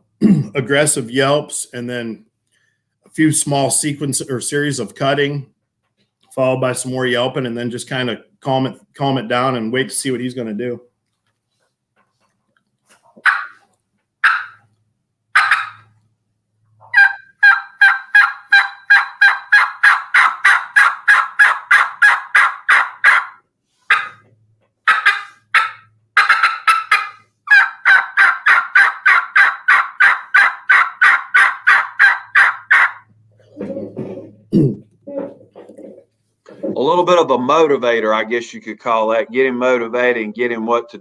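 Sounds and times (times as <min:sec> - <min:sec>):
turkey call yelps and clucks: 0:13.1 - 0:14.7, 0:15.3 - 0:16.0, 0:16.8 - 0:34.3.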